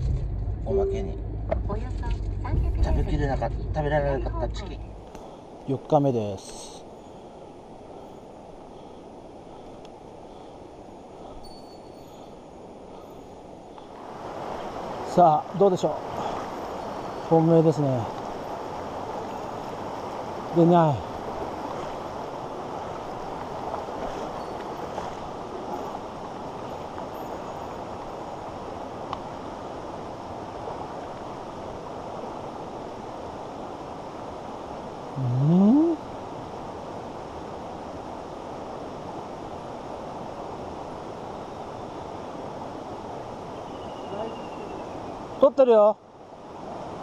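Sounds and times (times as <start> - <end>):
stream rushing over stones: 13.8 - 35.2.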